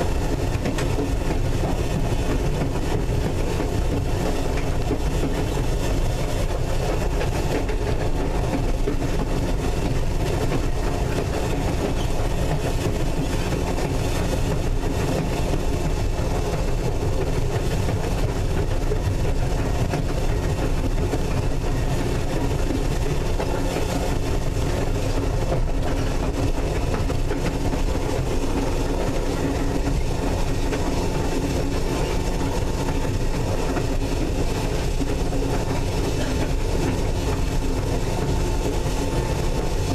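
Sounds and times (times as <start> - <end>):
wheels rumbling on rail: 0.0 - 39.9.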